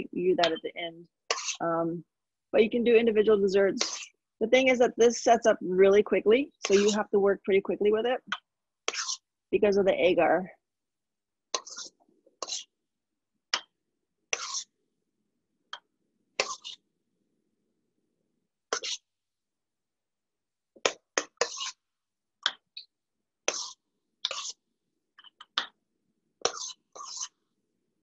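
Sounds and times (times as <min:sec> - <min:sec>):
metal spoon scraping a bowl: 0:01.3 - 0:01.6, 0:03.8 - 0:04.1, 0:06.6 - 0:07.0, 0:08.9 - 0:09.3, 0:11.6 - 0:12.7, 0:14.4 - 0:14.7, 0:16.4 - 0:16.8, 0:18.8 - 0:19.1, 0:21.2 - 0:21.8, 0:23.5 - 0:24.6, 0:26.5 - 0:27.4.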